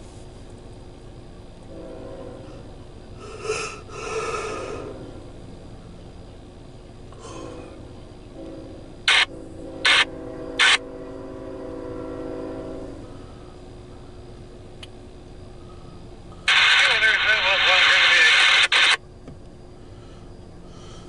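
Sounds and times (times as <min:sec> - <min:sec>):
distant locomotive horn: 0:01.5 - 0:06.2, 0:07.1 - 0:19.0
short sharp bursts: 0:09.1 - 0:10.8.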